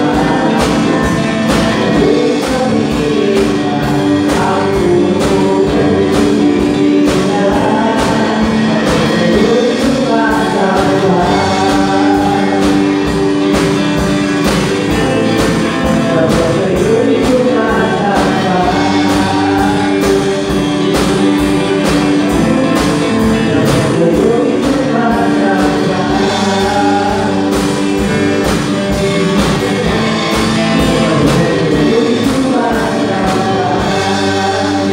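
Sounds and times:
drum kit steady beat: 0:00.0 - 0:34.9
people singing: 0:00.0 - 0:34.9.

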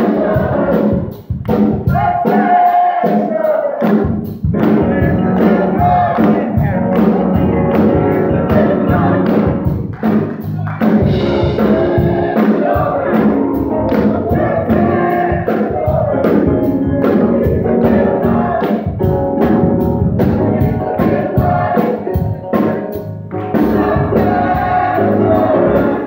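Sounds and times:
gospel choir singing: 0:00.0 - 0:09.9, 0:10.6 - 0:26.0
piano and keyboard: 0:00.0 - 0:26.0
hands clapping on the beat: 0:03.8 - 0:07.9, 0:09.3 - 0:11.1.

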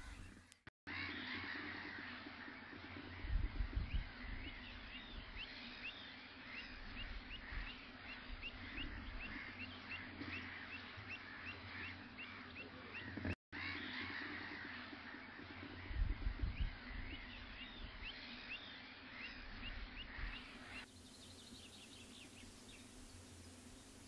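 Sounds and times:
wetland birds calling: 0:00.0 - 0:24.0
low rumbles on microphone: 0:03.1 - 0:05.4, 0:15.8 - 0:18.1.

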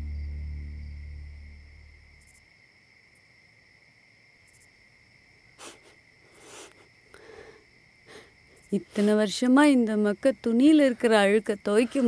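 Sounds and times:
low background music: 0:00.0 - 0:02.2
crickets chirring: 0:00.0 - 0:12.0
person sobbing breaths: 0:05.6 - 0:08.3.

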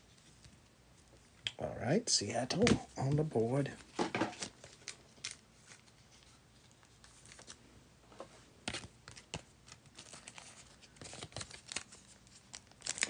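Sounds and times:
trading cards rustling and clicking: 0:08.6 - 0:13.0.

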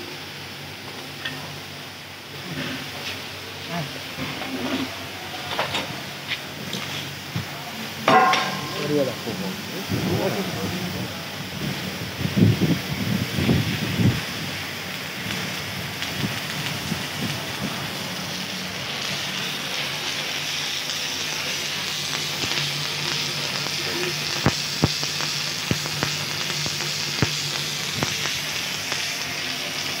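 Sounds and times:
welding arc crackling: 0:00.0 - 0:30.0
sharp pops: 0:08.1 - 0:09.1, 0:24.3 - 0:29.1.

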